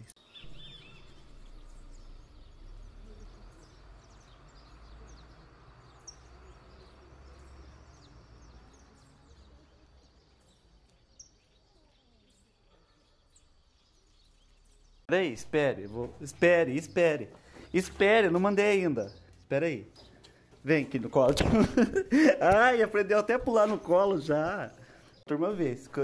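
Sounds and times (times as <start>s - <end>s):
high bird chirps: 0.1s - 15.1s.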